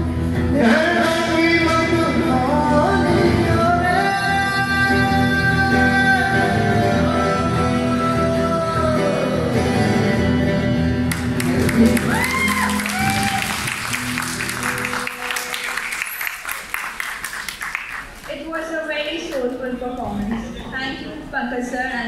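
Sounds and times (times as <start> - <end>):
electric guitar and backing music: 0.0 - 15.9
man singing: 0.4 - 10.8
audience applauding: 11.1 - 18.8
audience shouts: 11.9 - 13.8.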